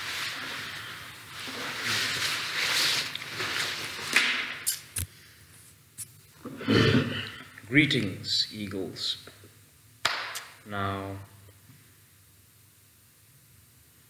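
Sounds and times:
rustling handling noise: 0.0 - 4.3.

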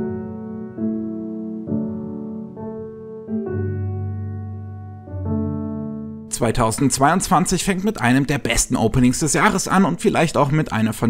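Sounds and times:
soft piano chords: 0.0 - 8.1.

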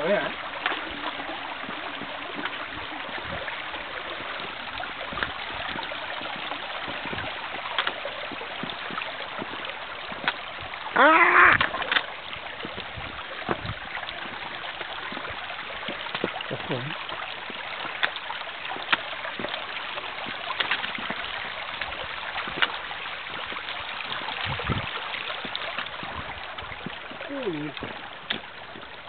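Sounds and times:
footsteps on wet stones: 0.0 - 29.0
shallow water splashing over stones: 0.0 - 29.0
voice-like call: 11.0 - 11.8.

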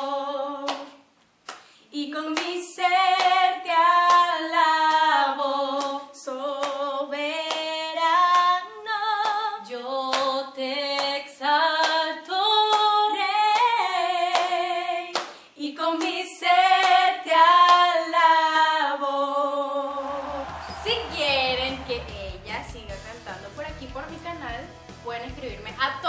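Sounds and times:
women singing a cappella: 0.0 - 1.1, 1.9 - 20.5
hand claps: 0.7 - 2.6, 4.0 - 4.3, 5.8 - 6.0, 6.6 - 8.6, 10.1 - 10.4, 11.8 - 12.0, 14.3 - 15.4, 16.0 - 16.2, 17.7 - 17.9.

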